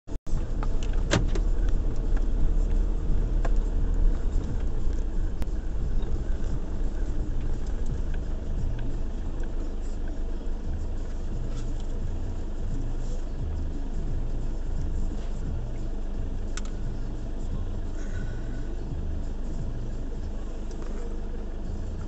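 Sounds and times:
car engine and tyre rumble: 0.0 - 22.0
sharp clicks: 16.5 - 16.8.

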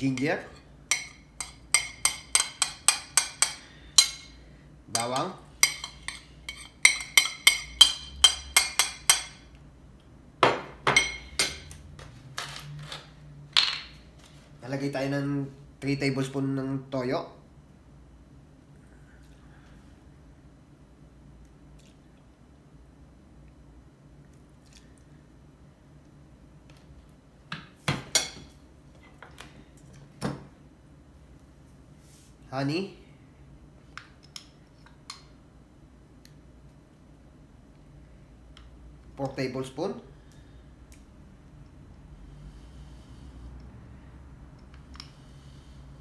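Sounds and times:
metal spoon clinking on plate: 0.9 - 4.3, 5.6 - 9.4.

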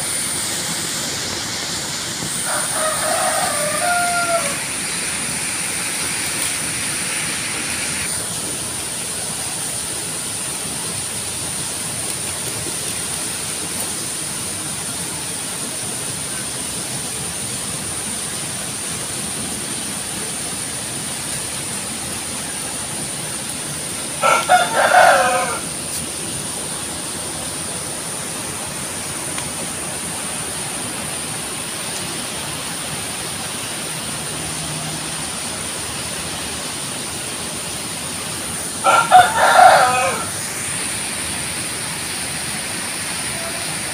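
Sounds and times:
steady background hiss: 0.0 - 43.9
rooster crowing: 2.4 - 5.1, 24.2 - 25.7, 38.8 - 40.5.

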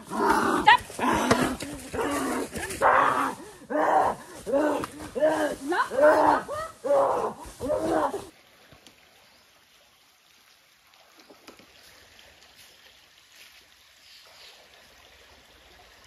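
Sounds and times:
stream trickling faintly: 8.3 - 16.0.

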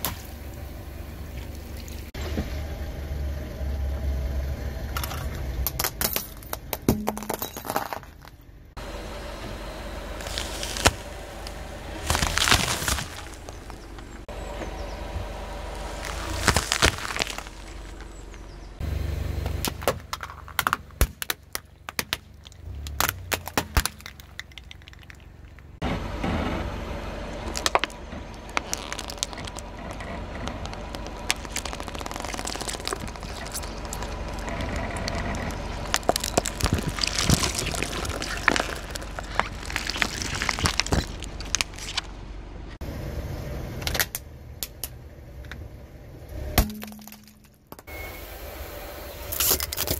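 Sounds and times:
car tyre crushing plastic objects: 4.9 - 8.5, 10.1 - 14.7, 15.4 - 18.8, 19.4 - 25.8, 27.2 - 42.4, 46.5 - 47.9, 49.3 - 49.9.

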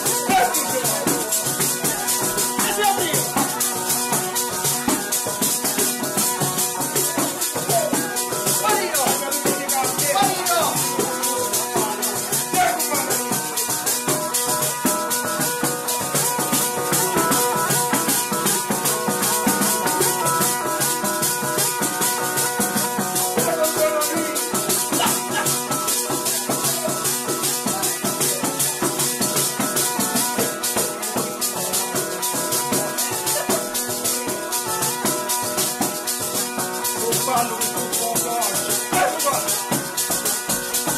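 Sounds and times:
bagpipe playing over drones: 10.8 - 37.2.

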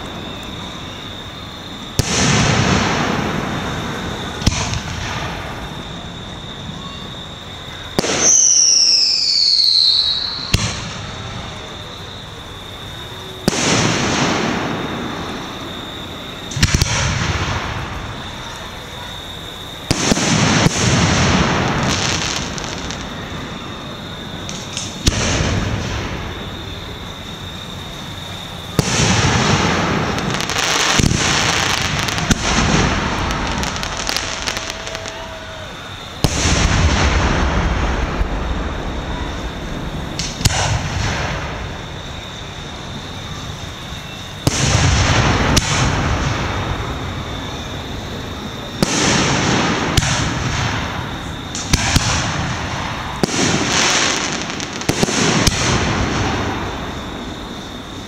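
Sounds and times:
fireworks shells bursting: 39.2 - 42.6.

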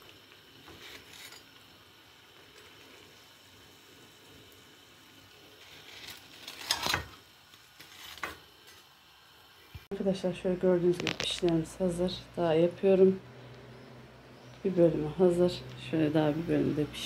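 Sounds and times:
dough sizzling in oil: 0.0 - 13.2.

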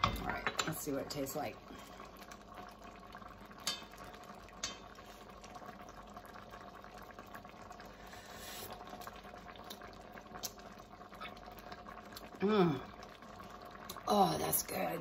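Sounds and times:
stew bubbling in a pot: 0.0 - 15.0
spoon clinking on pot: 3.6 - 3.9.

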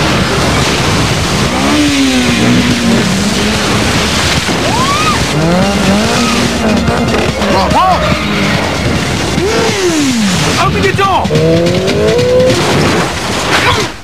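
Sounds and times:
car engine revving: 0.3 - 13.2
tyres squealing: 1.8 - 12.7.

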